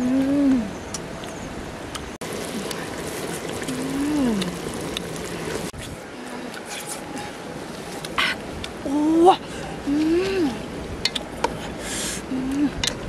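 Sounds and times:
pot simmering with bubbling hiss: 0:02.2 - 0:08.7.

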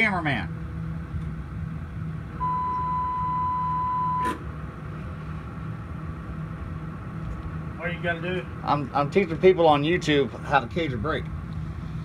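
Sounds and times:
low engine hum: 0:00.0 - 0:12.0
steady electronic beep: 0:02.4 - 0:04.3.

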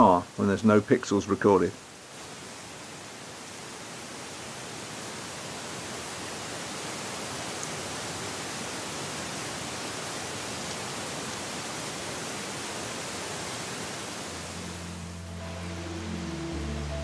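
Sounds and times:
steady microphone hiss: 0:00.0 - 0:17.0
low music notes: 0:14.5 - 0:17.0.

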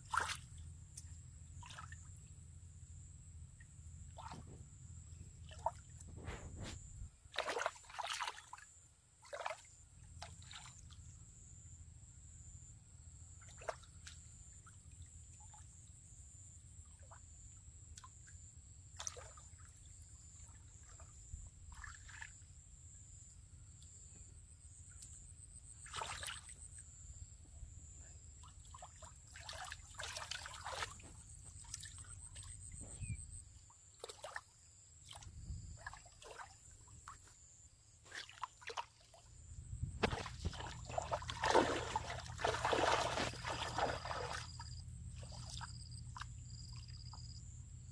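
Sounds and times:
small splashes in muddy water: 0:00.0 - 0:02.3, 0:04.1 - 0:04.6, 0:05.4 - 0:11.1, 0:13.4 - 0:15.7, 0:16.8 - 0:22.5, 0:24.9 - 0:26.8, 0:28.2 - 0:39.4, 0:40.0 - 0:47.4.

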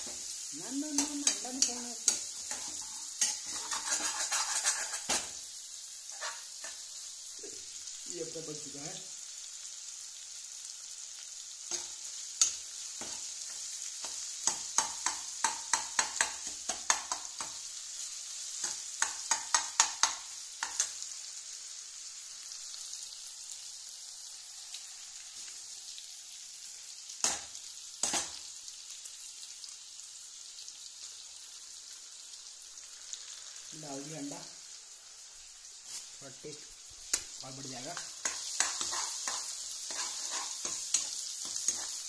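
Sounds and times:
meat sizzling in oil: 0:00.0 - 0:42.0
ladle scraping and knocking pan: 0:02.5 - 0:05.4, 0:38.2 - 0:42.0.

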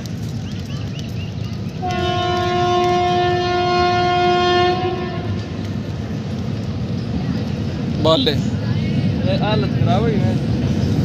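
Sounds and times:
locomotive horn blast: 0:01.8 - 0:05.6.

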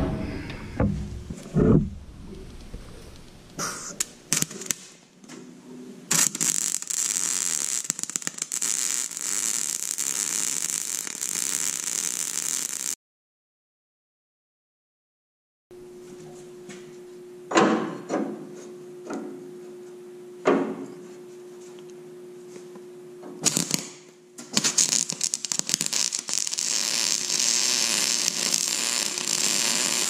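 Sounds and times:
welding arc crackling and hissing: 0:02.5 - 0:05.0, 0:06.1 - 0:13.0, 0:23.4 - 0:30.0.

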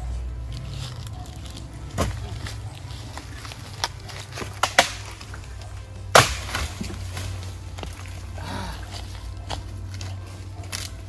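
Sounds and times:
background music: 0:00.0 - 0:11.0
dry wood cracking: 0:00.4 - 0:11.0
branch snapping underfoot: 0:03.2 - 0:08.2, 0:09.4 - 0:11.0.

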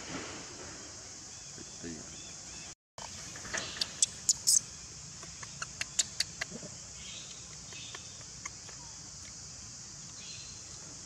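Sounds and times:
steady high hiss: 0:00.0 - 0:11.0.

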